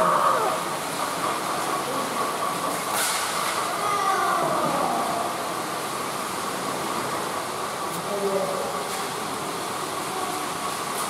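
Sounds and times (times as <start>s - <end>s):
toy trains running on track: 0.0s - 8.1s.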